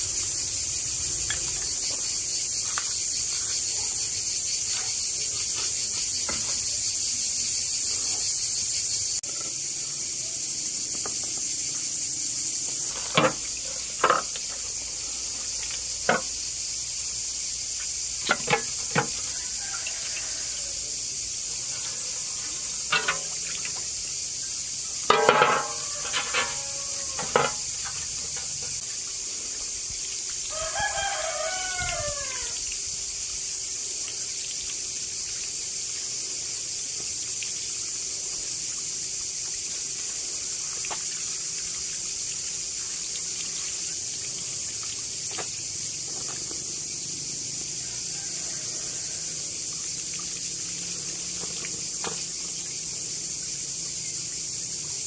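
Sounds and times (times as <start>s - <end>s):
insect chorus: 0.0s - 55.0s
rooster crowing: 19.0s - 21.2s, 25.1s - 27.8s, 30.5s - 32.7s, 47.7s - 49.7s.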